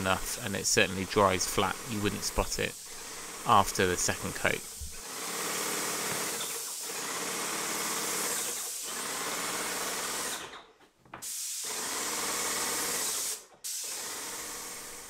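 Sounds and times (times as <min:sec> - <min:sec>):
paint spraying hiss: 0:00.0 - 0:07.0, 0:11.2 - 0:12.1, 0:12.8 - 0:15.0.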